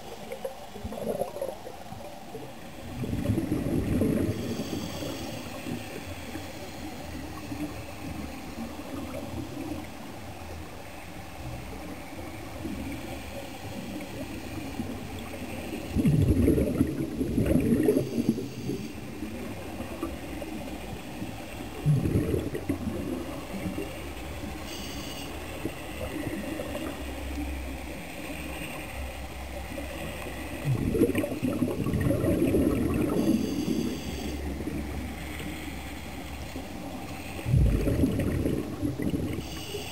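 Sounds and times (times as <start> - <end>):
regulator bubbles gurgling: 0.0 - 6.4, 13.8 - 28.4, 29.4 - 35.2, 36.5 - 39.9
low underwater rumble: 2.8 - 6.1, 15.8 - 24.6, 29.5 - 39.8.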